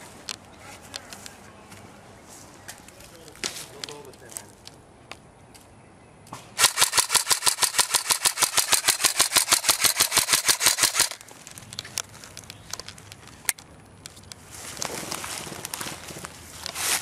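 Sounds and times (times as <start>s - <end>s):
airsoft rifle full-auto burst: 6.6s - 11.2s.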